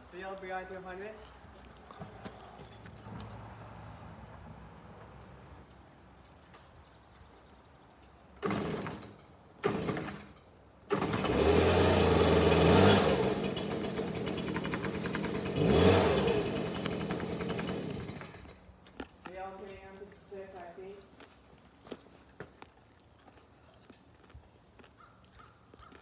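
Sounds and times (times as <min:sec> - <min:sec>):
small gas engine running: 0:08.4 - 0:10.2, 0:10.9 - 0:18.6
pull cord starter pulls: 0:10.9 - 0:18.6.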